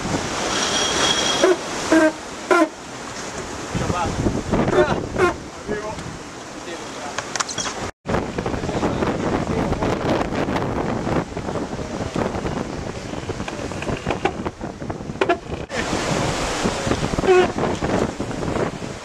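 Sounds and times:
rushing water and spray: 0.0s - 19.0s
wind buffeting microphone: 3.4s - 6.4s, 7.8s - 19.0s.

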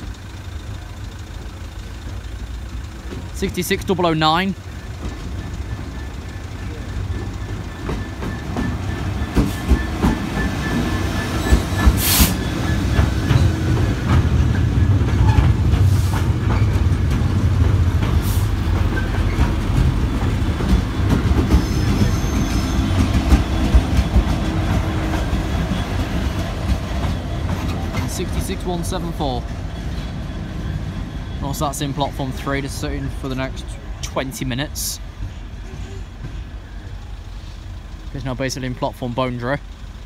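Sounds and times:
wheels clicking over rail joints: 0.0s - 30.2s
diesel locomotive engines rumbling: 0.0s - 40.0s.

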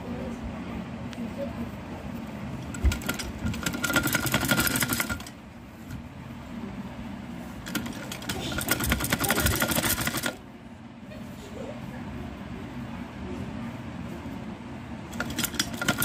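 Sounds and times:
sewing machine needle clatter: 2.7s - 5.3s, 7.6s - 10.4s, 15.1s - 16.0s.

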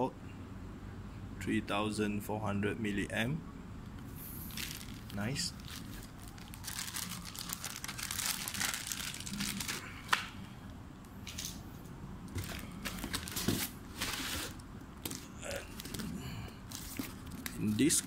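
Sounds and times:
plastic packaging crinkling: 4.2s - 10.2s, 12.3s - 17.6s.

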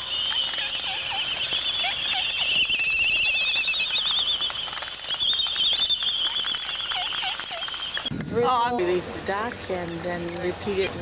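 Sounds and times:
albatrosses warbling: 0.0s - 8.1s
bill clapping clicks: 0.2s - 8.4s, 9.3s - 11.0s.

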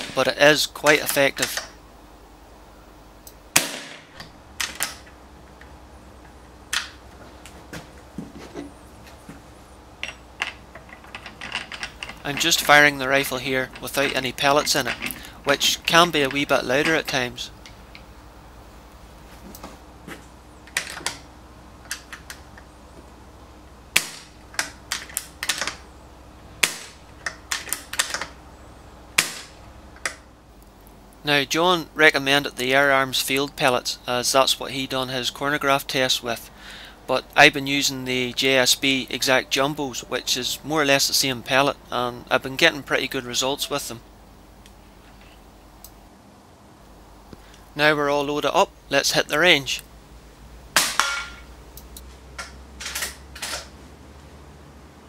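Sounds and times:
air rifle shot crack: 3.5s - 4.2s, 24.0s - 24.4s, 26.6s - 27.9s, 29.2s - 29.6s
air rifle dry-fire cracks: 29.2s - 30.2s.

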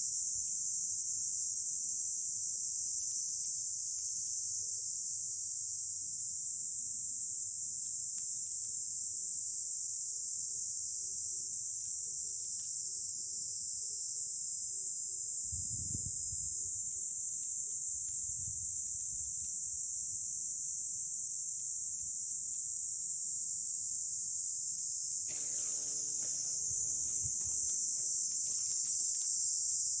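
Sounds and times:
insects buzzing: 24.4s - 30.0s.

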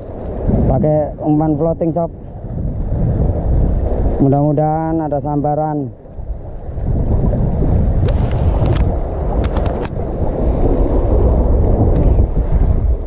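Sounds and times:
sea surf: 0.0s - 13.0s
wind buffeting microphone: 0.0s - 13.0s.

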